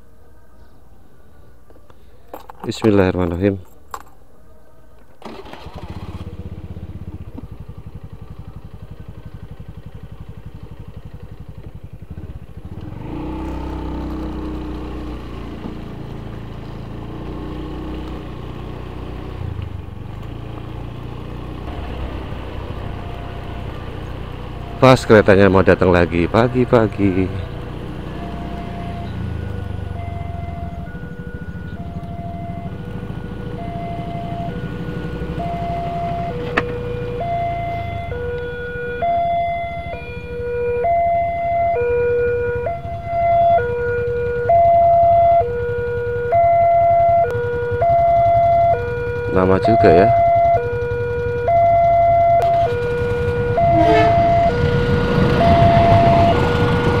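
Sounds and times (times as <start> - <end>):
motor scooter engine running: 5.2 - 57.0
passing train: 21.7 - 28.0, 53.4 - 57.0
level crossing two-tone alarm: 21.7 - 57.0
level-crossing alarm two-tone signal: 53.5 - 57.0.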